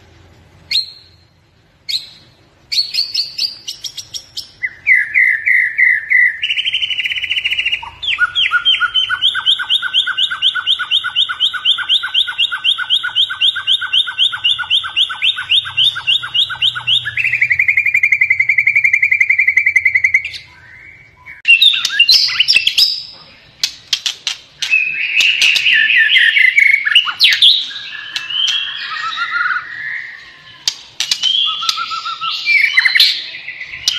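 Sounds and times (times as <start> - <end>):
bird singing: 0.6 - 33.9
sharp bird clicks: 21.5 - 23.0, 23.6 - 29.3, 30.6 - 33.0.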